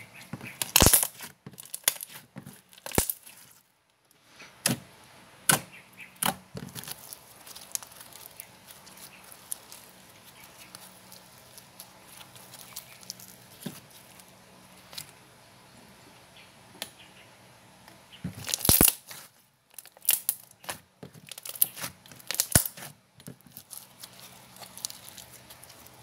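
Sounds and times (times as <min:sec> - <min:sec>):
small slime crackles: 0:06.7 - 0:15.0, 0:18.3 - 0:26.0.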